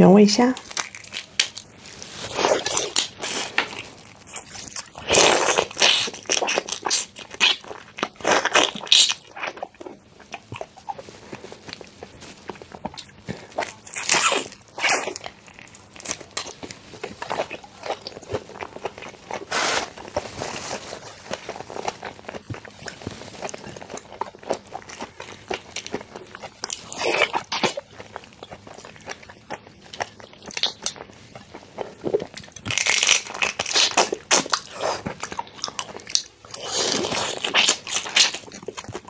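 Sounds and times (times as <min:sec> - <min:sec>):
prawn shells crackling: 0:32.6 - 0:38.8.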